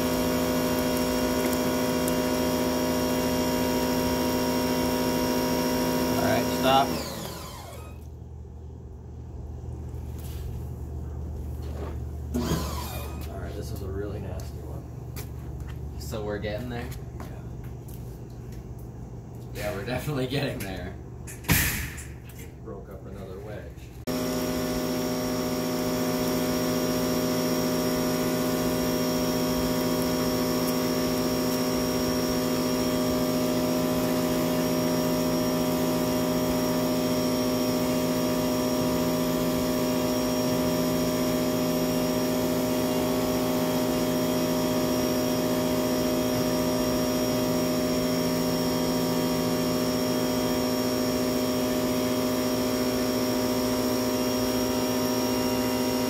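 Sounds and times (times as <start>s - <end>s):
pressure washer humming: 0.0s - 8.2s, 11.7s - 14.4s, 24.1s - 56.0s.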